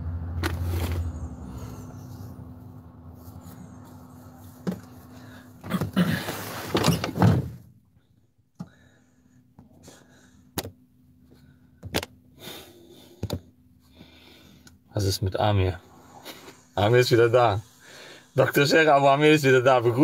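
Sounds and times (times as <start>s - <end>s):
outside noise: 0.0s - 8.0s
van door shutting: 5.7s - 7.6s.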